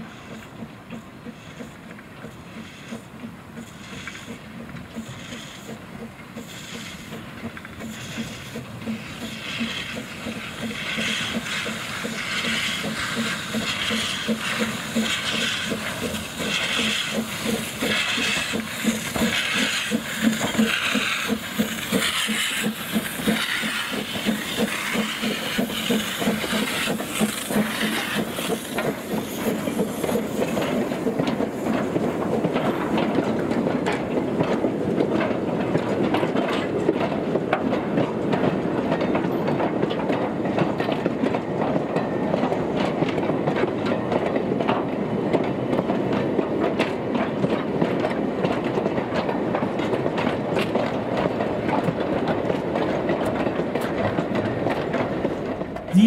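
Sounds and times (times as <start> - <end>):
hissing steam: 0.0 - 34.9, 54.0 - 56.0
steam locomotive exhaust beats: 0.0 - 56.0.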